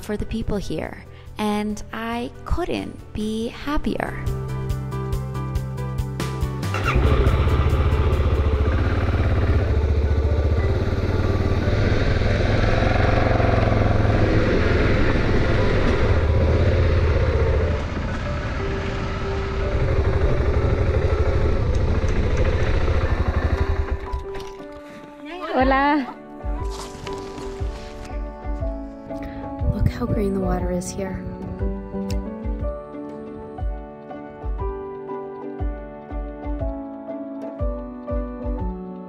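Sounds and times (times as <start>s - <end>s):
motorcycle engine running: 6.2s - 24.8s.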